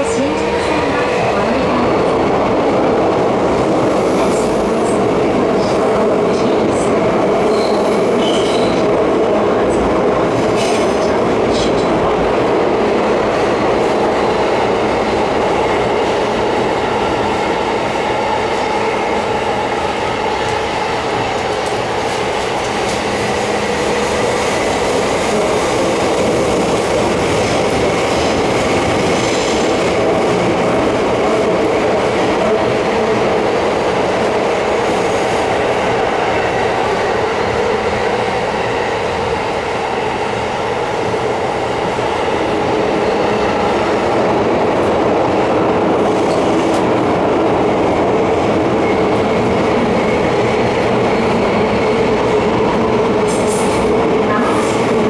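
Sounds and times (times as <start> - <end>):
wheels rumbling on rail: 0.0 - 55.0
wheel squealing against rail: 7.4 - 8.8
clickety-clack over rail joints: 46.0 - 47.0, 51.9 - 55.0.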